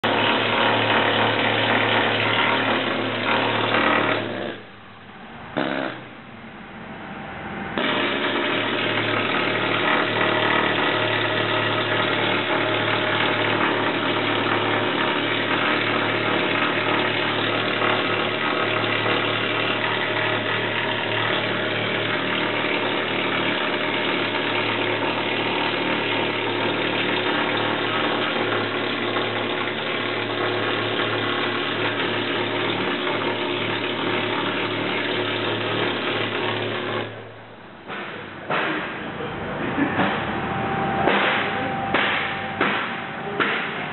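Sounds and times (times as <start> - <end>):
pneumatic tool on steel: 0.0 - 4.7, 5.6 - 6.0, 7.8 - 37.2
low hum: 4.5 - 10.9, 39.0 - 43.9.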